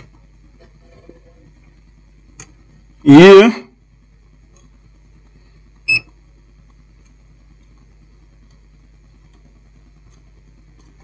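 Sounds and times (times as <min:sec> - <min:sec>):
faint low hum: 0:00.0 - 0:11.0
multimeter beep: 0:05.9 - 0:06.1.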